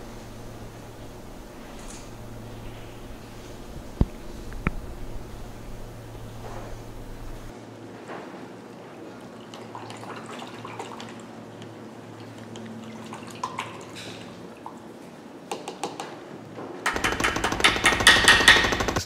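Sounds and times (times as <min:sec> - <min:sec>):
water drips and splashes: 0:09.0 - 0:15.1.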